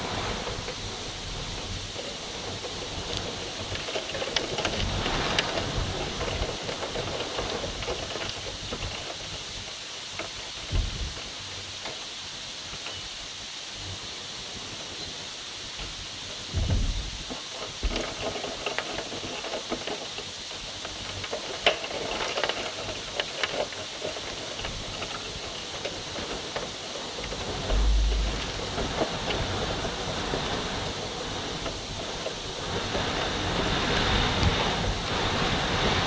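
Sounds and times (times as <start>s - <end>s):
rain hissing and tapping: 0.0s - 36.0s
wind buffeting microphone: 16.5s - 17.2s, 27.2s - 36.0s.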